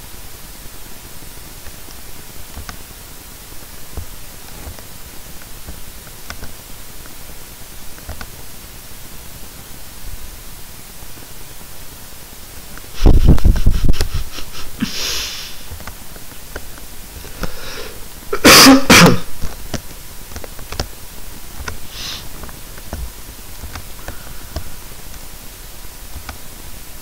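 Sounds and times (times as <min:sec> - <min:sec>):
steady background hiss: 0:00.0 - 0:27.0
person coughing: 0:18.3 - 0:19.3
person sneezing loudly: 0:18.3 - 0:19.3.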